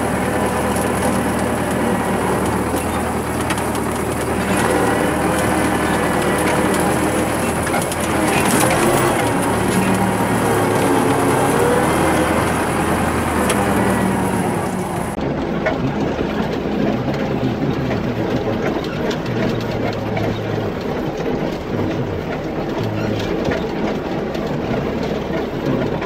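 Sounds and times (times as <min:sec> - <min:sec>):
clicks and rattles: 0:00.0 - 0:26.0
tractor diesel engine running: 0:00.0 - 0:26.0.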